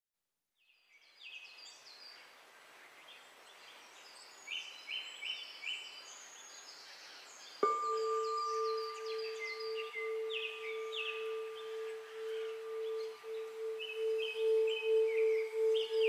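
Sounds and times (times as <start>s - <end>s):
ambient hiss: 1.6s - 16.0s
birds chirping: 6.2s - 16.0s
steady held tone: 7.6s - 16.0s.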